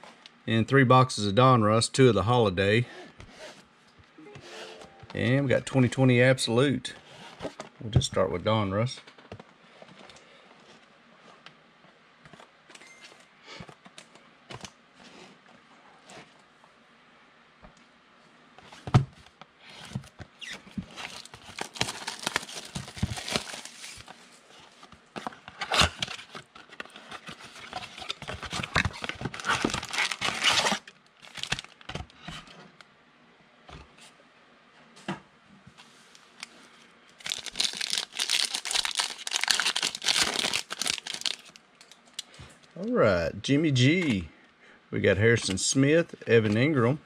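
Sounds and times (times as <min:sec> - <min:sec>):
card pack wrappers tearing: 0:20.9 - 0:24.1, 0:25.6 - 0:31.9, 0:37.2 - 0:42.0.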